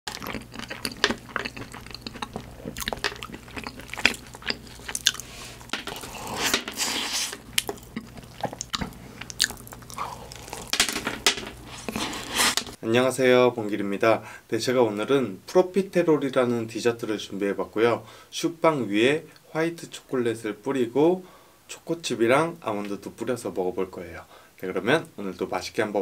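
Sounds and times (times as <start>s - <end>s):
biting and chewing crunches: 0.1s - 12.8s.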